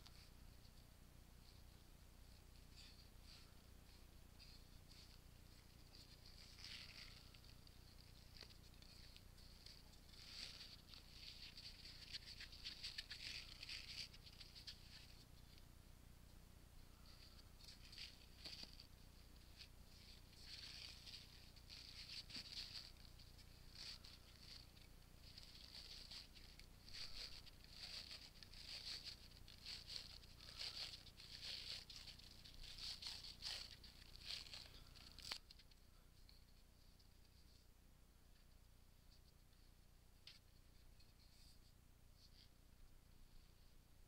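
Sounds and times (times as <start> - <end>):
tape crackling as unwound: 4.9 - 15.6, 17.2 - 35.8.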